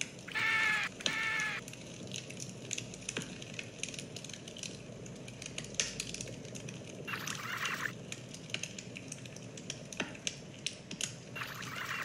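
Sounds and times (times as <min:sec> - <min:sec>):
burning wood snapping: 0:00.0 - 0:12.0
campfire crackling: 0:00.0 - 0:12.0
short high-pitched calls: 0:00.3 - 0:01.6.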